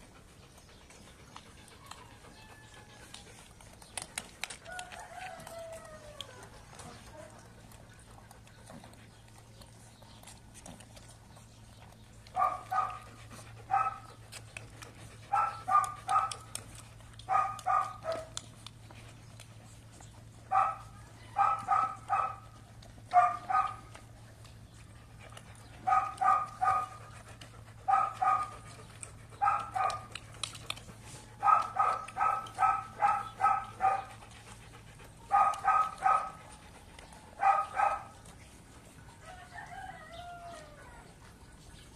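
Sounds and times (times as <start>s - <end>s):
dog barking: 12.4s - 13.1s, 13.7s - 14.0s, 15.3s - 16.4s, 17.3s - 18.3s, 20.5s - 22.5s, 23.1s - 23.9s, 25.9s - 27.0s, 27.9s - 28.6s, 29.4s - 30.1s, 31.4s - 34.1s, 35.3s - 36.4s, 37.4s - 38.2s.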